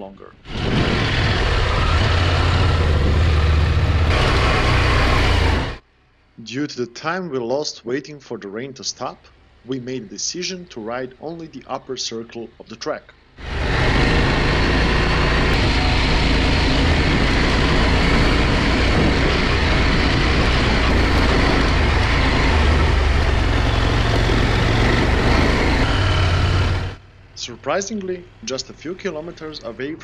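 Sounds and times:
wind noise: 0.4 - 4.8, 13.5 - 27.0
motorcycle engine hum: 0.4 - 6.3, 13.4 - 30.0
tyres on wet gravel: 15.6 - 26.3.

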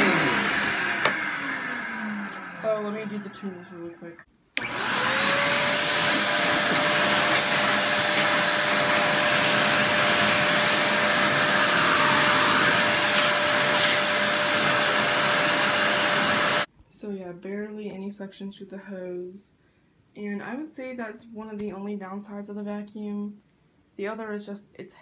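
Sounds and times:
vacuum cleaner motor whining: 0.0 - 16.7.

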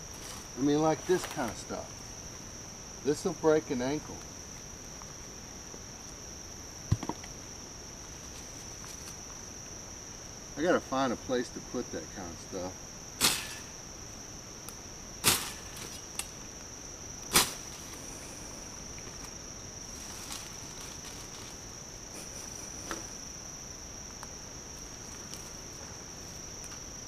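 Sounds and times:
crickets chirring: 0.0 - 27.0
tool thudding on ground: 6.9 - 7.3, 13.2 - 13.7, 15.2 - 16.0.

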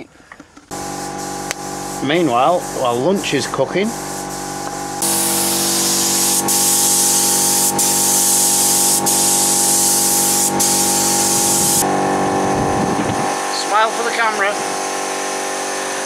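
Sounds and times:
paint spray gun hissing: 0.7 - 11.9.

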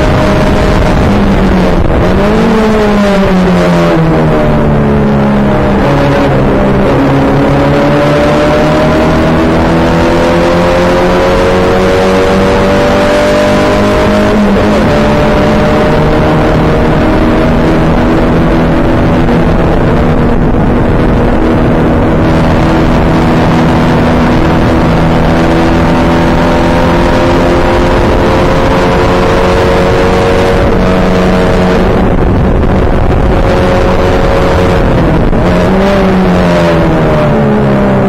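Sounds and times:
race car engine at high revs: 0.0 - 38.0
wind rush: 0.0 - 38.0.

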